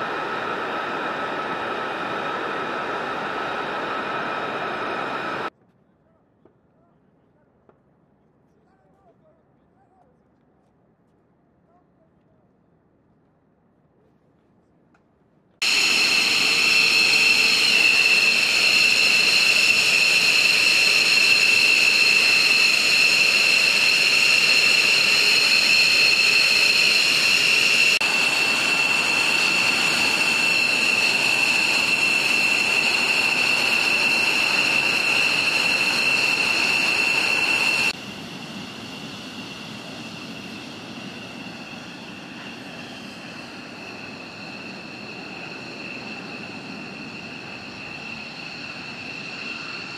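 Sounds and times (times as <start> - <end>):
jet engine rushing noise: 0.0 - 5.5, 15.6 - 49.9
jet engine turbine whine: 0.0 - 5.5, 15.6 - 49.9.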